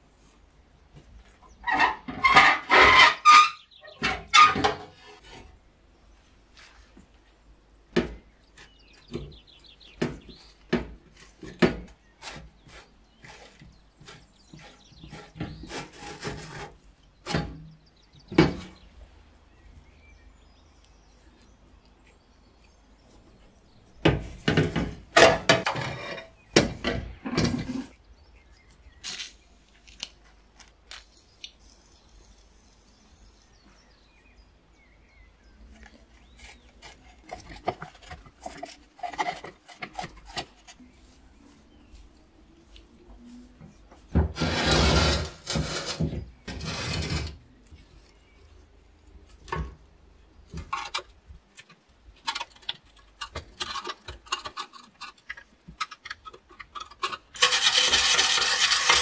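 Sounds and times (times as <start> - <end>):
rusty sheet metal scraping: 1.6 - 5.5, 24.5 - 26.4, 44.2 - 47.4, 53.2 - 59.0.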